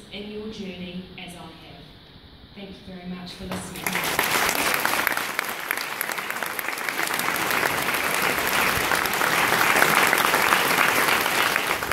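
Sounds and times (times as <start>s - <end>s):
audience applauding: 3.8s - 11.9s.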